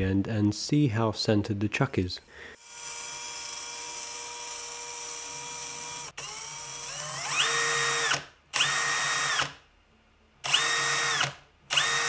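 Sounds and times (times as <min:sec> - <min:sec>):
electric drill whining: 0:02.6 - 0:09.5, 0:10.4 - 0:12.0.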